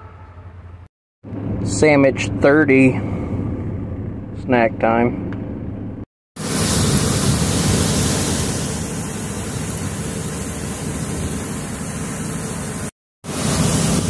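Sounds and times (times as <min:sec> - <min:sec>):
grain pouring: 0:06.4 - 0:14.0.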